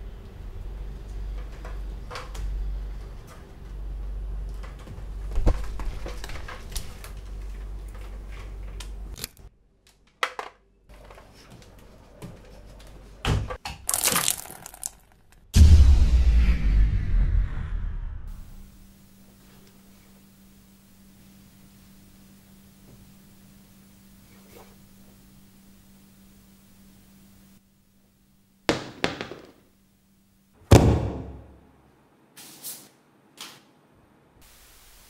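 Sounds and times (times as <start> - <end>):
low hum: 15.6 - 19.4.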